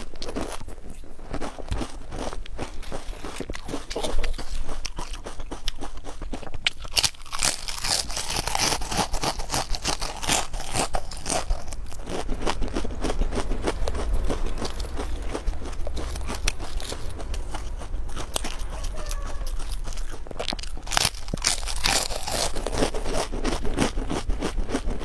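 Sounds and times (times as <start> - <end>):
crisps crunching being chewed: 0.0 - 25.0.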